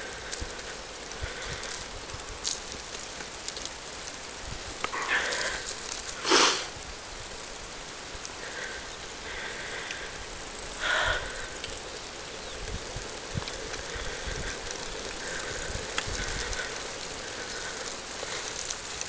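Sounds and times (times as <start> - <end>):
bike riding on dirt track: 0.0 - 19.0
cyclist breathing hard: 0.0 - 19.0.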